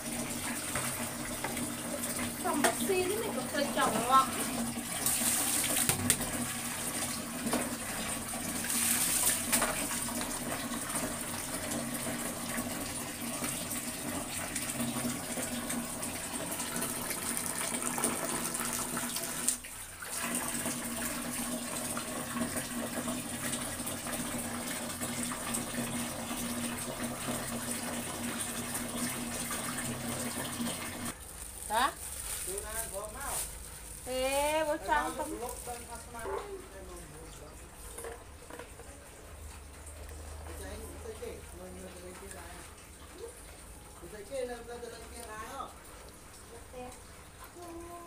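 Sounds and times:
water splashing in a basin: 0.0 - 32.8
running water: 0.0 - 48.0.

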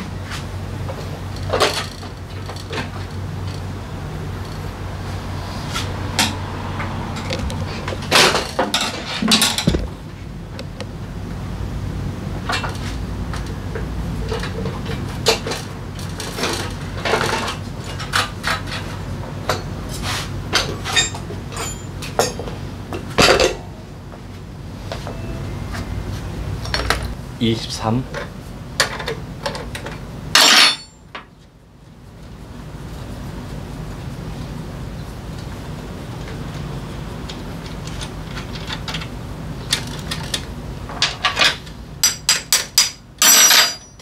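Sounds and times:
metal tools clanking on steel: 8.1 - 9.9, 20.5 - 22.5, 26.6 - 27.2, 30.4 - 31.0, 39.7 - 44.0
low hum: 23.4 - 27.4.

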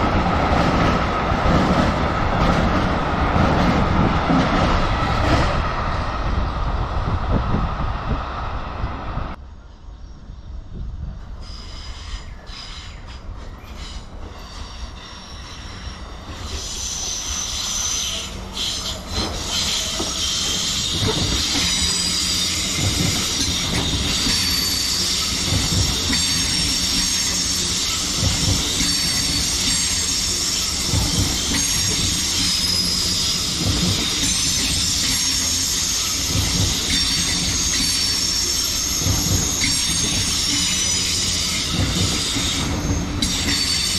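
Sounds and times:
train rumble: 0.0 - 43.9
train wheels squealing: 11.4 - 43.9.

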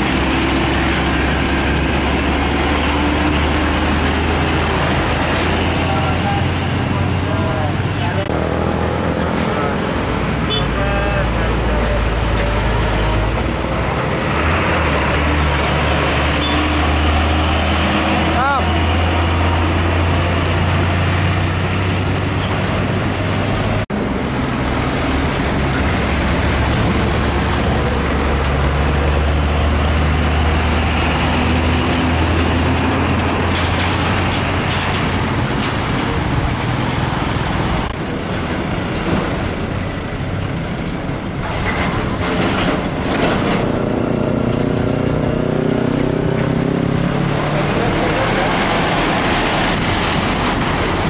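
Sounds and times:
truck engine accelerating: 0.0 - 10.5, 11.1 - 51.0
diesel truck engine drone: 0.0 - 51.0
tyre and road noise: 0.0 - 51.0.

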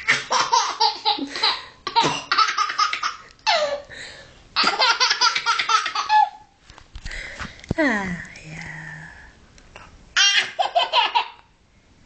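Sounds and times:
baby laughing: 0.0 - 3.8, 4.6 - 6.5, 10.2 - 11.4.

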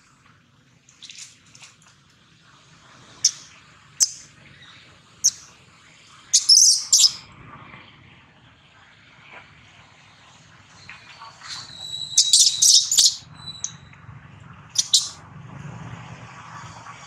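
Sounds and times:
monkey shrill squeals: 11.6 - 13.8.

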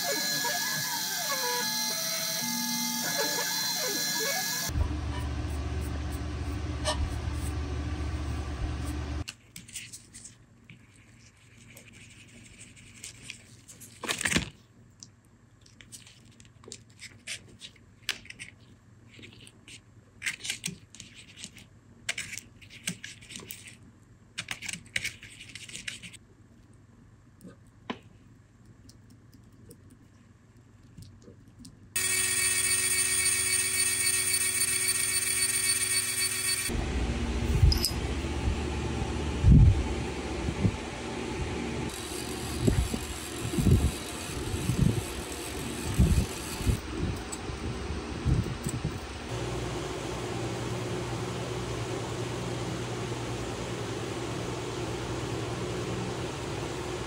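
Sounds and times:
router spindle high-pitched whine: 0.0 - 4.8, 32.0 - 37.0
machine spindle running: 0.0 - 9.2, 32.0 - 39.0, 41.9 - 46.8.

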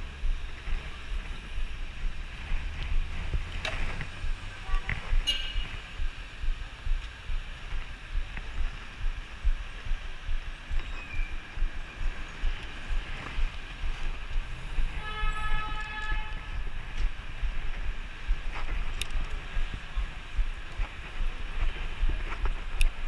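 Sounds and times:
street traffic: 0.0 - 23.0
wind buffeting microphone: 0.0 - 23.0
vehicle horn: 4.5 - 5.9, 14.9 - 16.6.

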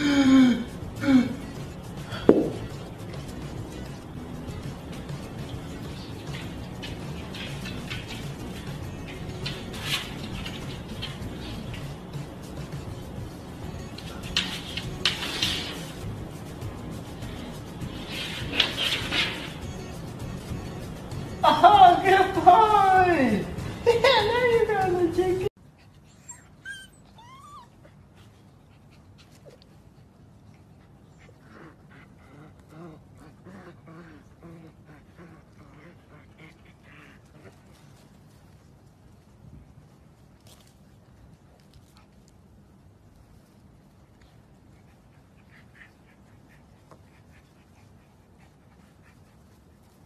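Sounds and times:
puppy panting: 1.4 - 21.4, 23.6 - 38.6, 44.2 - 50.0
puppy whimper: 26.1 - 28.0.

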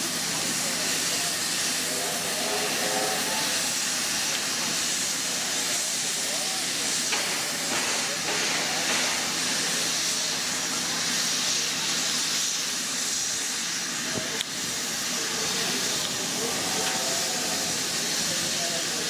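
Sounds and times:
hiss of steam: 0.0 - 19.0
steam locomotive approaching: 0.0 - 19.0.

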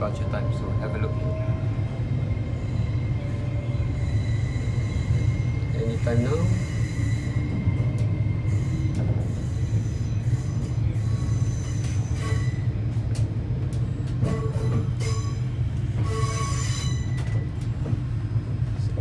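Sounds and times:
train low rumble: 0.0 - 19.0
high-pitched wheel squeals: 2.5 - 7.6, 8.4 - 12.7, 16.0 - 17.5.

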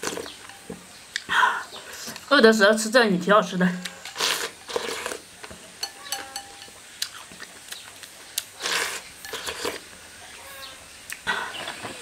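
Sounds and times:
person slurping: 3.8 - 5.2, 8.5 - 9.9.

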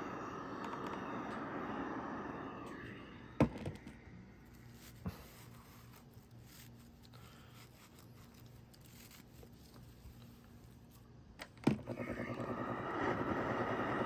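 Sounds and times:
steam iron hissing: 0.0 - 3.5, 11.8 - 14.0
low hum: 0.0 - 6.7
hands rustling raffia: 4.4 - 11.0.

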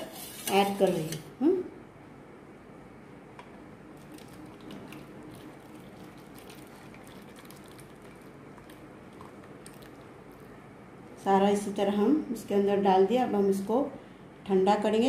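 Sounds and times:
faint liquid pouring: 4.0 - 10.6.

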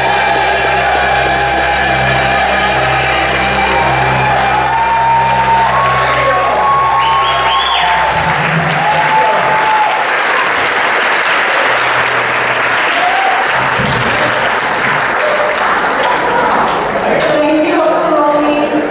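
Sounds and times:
audience applauding: 0.0 - 17.2
band members clapping along: 4.2 - 17.2.

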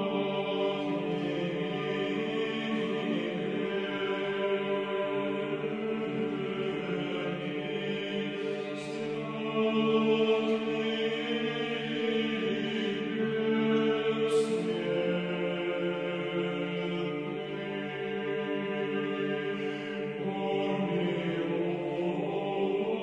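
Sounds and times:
choir chanting long notes: 0.0 - 23.0.

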